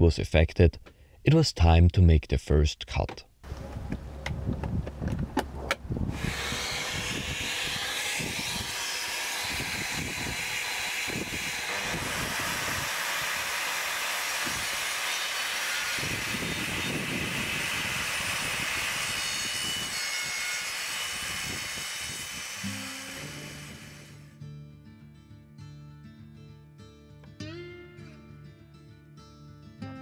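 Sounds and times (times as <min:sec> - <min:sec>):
shop vacuum running: 0:06.1 - 0:24.3.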